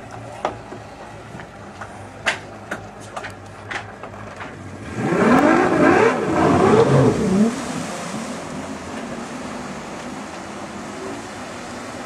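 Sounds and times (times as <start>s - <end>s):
motorboat engine revving: 4.6s - 9.9s.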